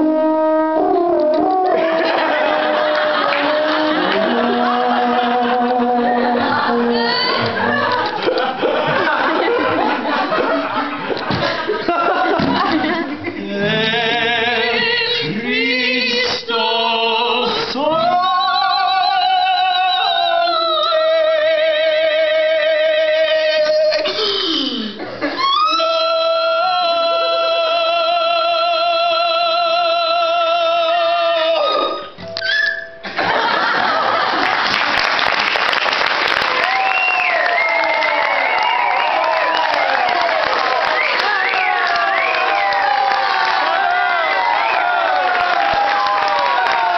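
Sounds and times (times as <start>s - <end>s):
audience applauding and cheering: 0.8s - 13.0s, 33.8s - 46.9s
man and woman singing operatically: 1.5s - 7.8s, 11.9s - 32.2s.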